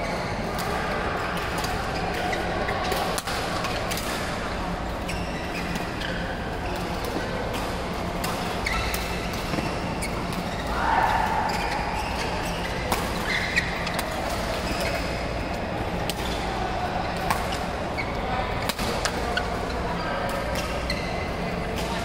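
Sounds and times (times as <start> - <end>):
badminton rackets hitting shuttlecocks: 11.5 - 15.2.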